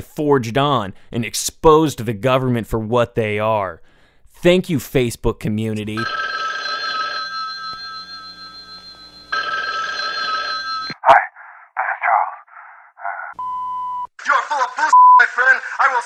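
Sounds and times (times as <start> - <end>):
telephone bell ringing: 6.0 - 11.0.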